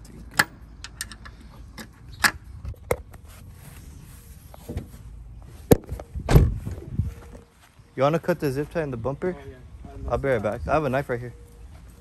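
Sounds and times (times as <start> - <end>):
sharp clicks and knocks of tools: 0.0 - 3.0.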